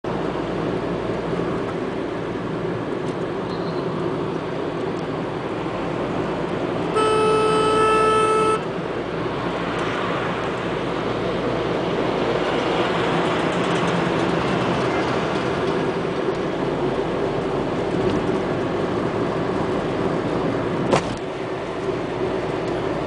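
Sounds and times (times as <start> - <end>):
car road and engine noise: 0.0 - 23.0
vehicle horn blast: 6.9 - 8.7.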